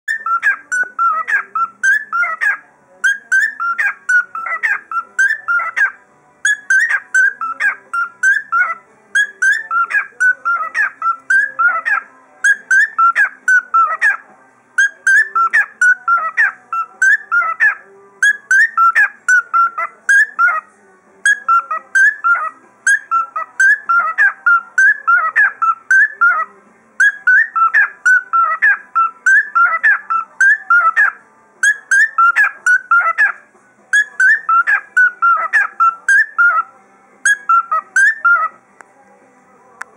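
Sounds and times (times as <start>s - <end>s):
cockatiel whistling: 0.1s - 5.9s, 6.5s - 14.2s, 27.0s - 33.4s, 34.0s - 36.6s, 37.3s - 38.5s.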